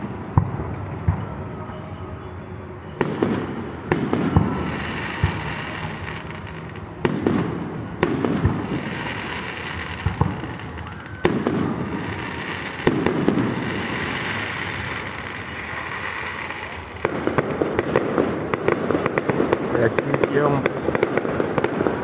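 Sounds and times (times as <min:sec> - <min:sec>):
firework shells bursting: 0:02.8 - 0:22.0
firework hiss: 0:04.0 - 0:19.8
crackling firework pops: 0:07.0 - 0:22.0.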